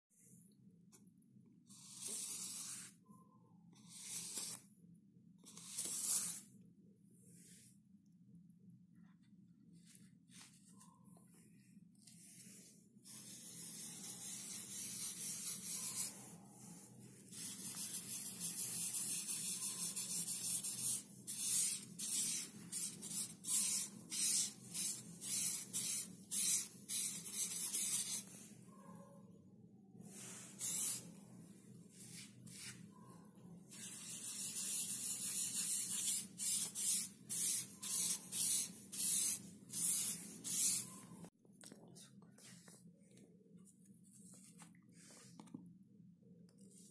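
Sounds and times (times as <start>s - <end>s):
pastel scratching on paper: 1.7s - 3.0s, 3.8s - 4.6s, 5.4s - 6.5s, 12.0s - 28.8s, 30.1s - 31.1s, 33.7s - 41.1s.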